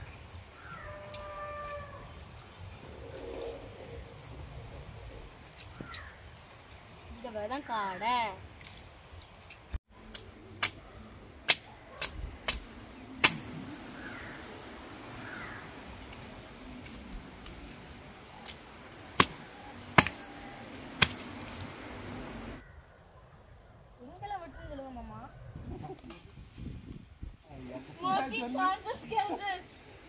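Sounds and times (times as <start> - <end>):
steady background hiss: 0.0 - 22.6, 25.7 - 30.0.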